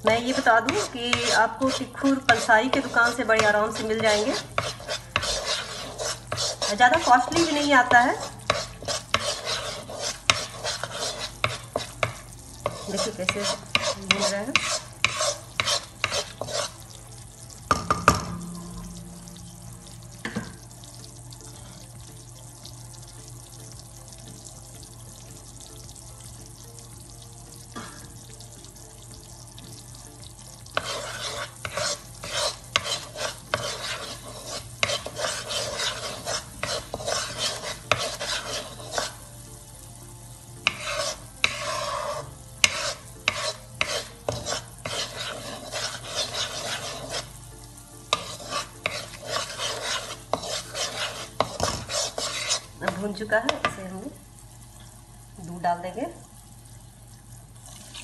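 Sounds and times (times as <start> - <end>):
wooden spatula scraping: 0.0 - 17.0, 30.6 - 39.2, 40.6 - 47.4, 48.1 - 53.8
frying sizzle: 0.0 - 58.0.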